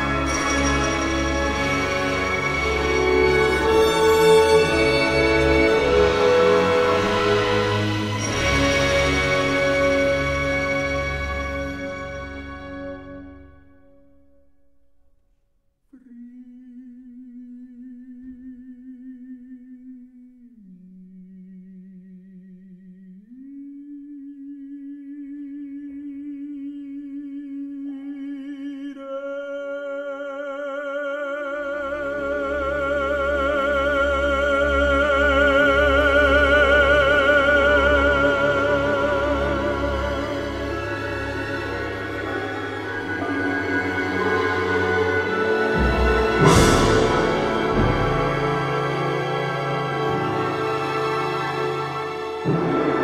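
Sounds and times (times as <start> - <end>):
orchestral music: 0.0 - 15.0, 31.4 - 53.0
baritone voice singing: 23.3 - 53.0.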